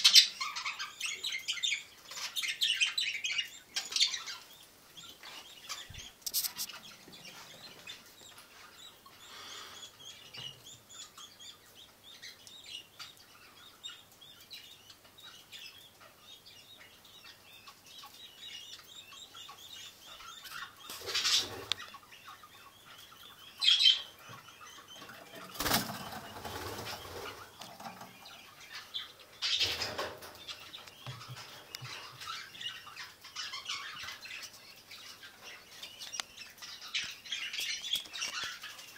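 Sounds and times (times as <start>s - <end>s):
budgerigars chirping and chattering: 0.0s - 38.9s
wings flapping: 25.4s - 27.6s.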